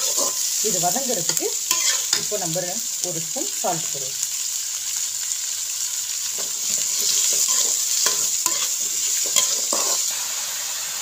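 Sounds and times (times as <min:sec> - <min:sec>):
onions sizzling in oil: 0:00.0 - 0:11.0
metal spatula scraping pan: 0:01.7 - 0:02.3, 0:06.4 - 0:10.2.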